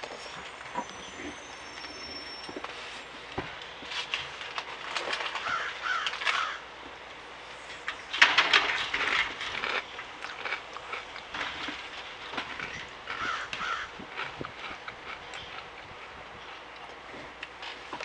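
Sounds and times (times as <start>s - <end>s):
crows cawing: 5.4s - 6.7s, 13.1s - 14.0s.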